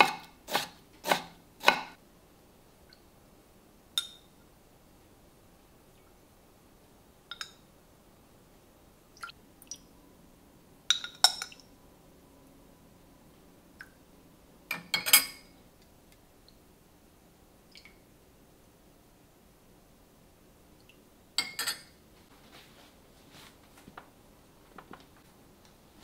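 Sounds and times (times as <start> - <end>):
tableware clinking: 14.7 - 15.5, 21.4 - 22.0.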